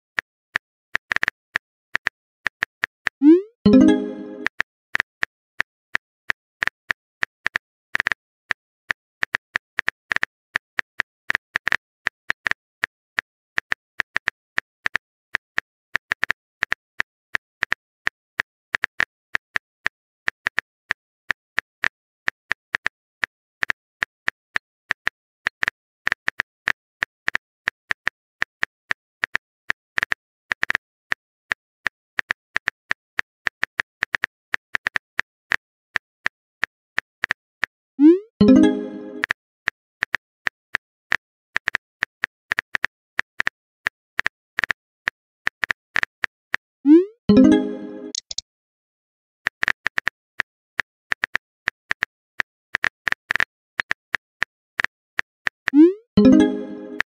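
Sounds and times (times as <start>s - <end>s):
quick irregular clicks: 48.1s - 48.4s.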